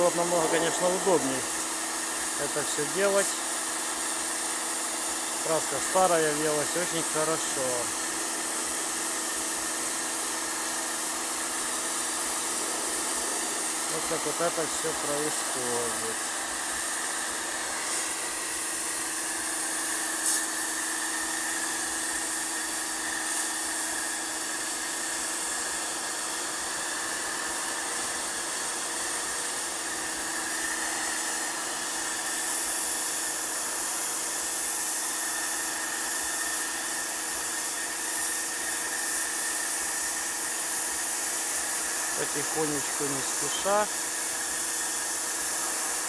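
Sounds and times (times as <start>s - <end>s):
motor and pump hum: 0.0s - 46.0s
pressure washer jet hissing: 0.0s - 46.0s.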